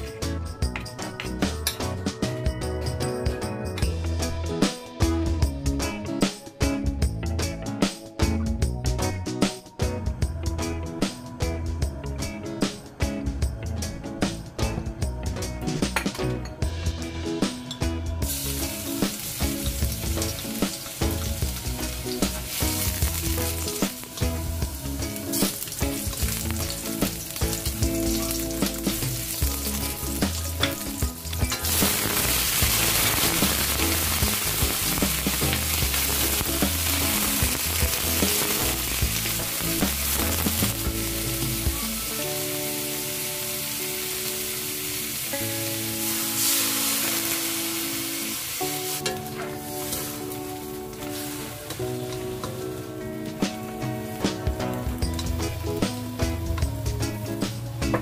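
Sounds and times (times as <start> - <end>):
background music: 0.0 - 58.0
food sizzling in hot oil: 18.2 - 56.3.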